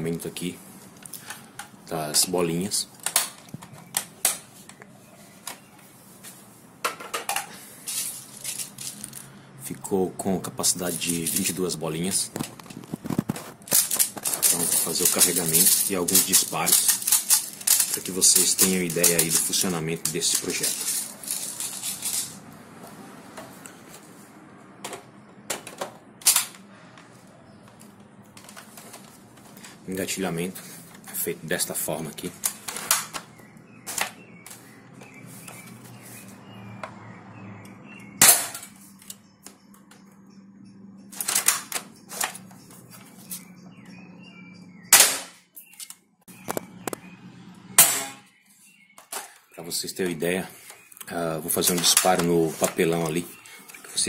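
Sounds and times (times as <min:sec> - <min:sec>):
plastic pellets clicking and rattling: 0:07.9 - 0:09.3, 0:12.3 - 0:22.4.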